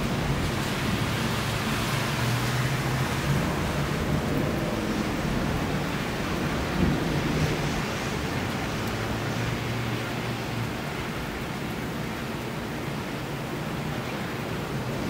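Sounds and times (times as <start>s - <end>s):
rain falling: 0.0s - 15.0s
low rumble of thunder: 2.8s - 10.0s.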